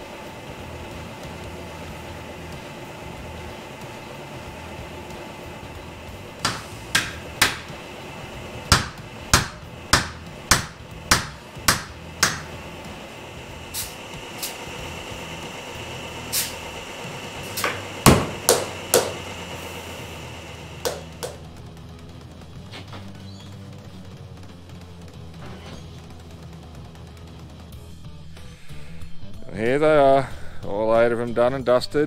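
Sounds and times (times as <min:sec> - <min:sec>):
air line hissing: 0:00.0 - 0:21.4
hammer blows on steel rims: 0:08.6 - 0:12.6.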